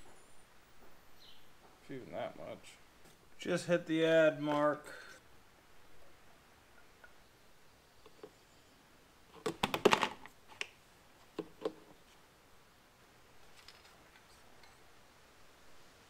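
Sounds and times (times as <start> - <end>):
plastic clicks and clatter: 9.4 - 10.7.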